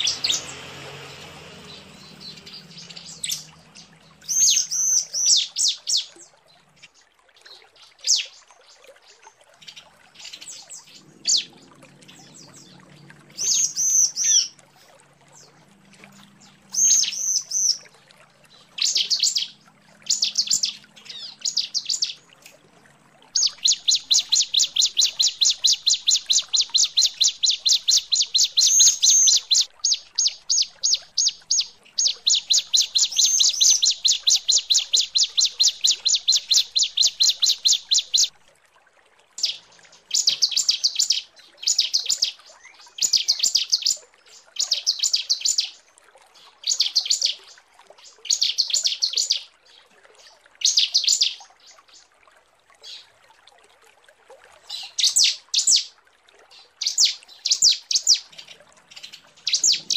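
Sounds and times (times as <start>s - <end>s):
bird chirping: 0.0s - 6.9s, 9.6s - 14.5s, 16.2s - 17.8s, 18.5s - 22.2s, 23.4s - 38.3s, 56.8s - 59.9s.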